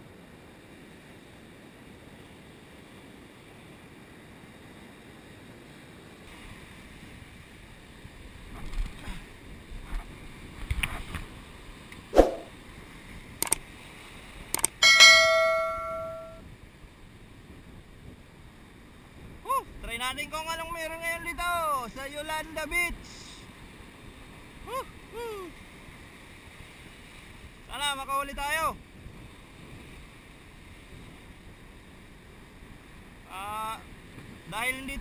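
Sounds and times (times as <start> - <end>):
surf washing over rocks: 0.0 - 35.0
loud metallic clang: 14.8 - 16.4.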